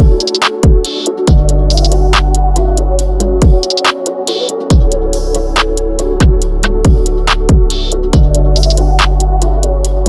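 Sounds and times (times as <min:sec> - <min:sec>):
drum and hi-hat strikes: 0:00.0 - 0:10.0
deep sliding bass: 0:04.8 - 0:10.0.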